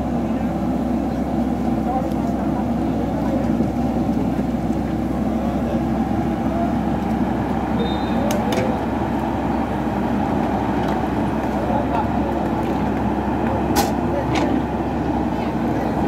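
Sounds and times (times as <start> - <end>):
diesel engine under load: 0.0 - 16.0.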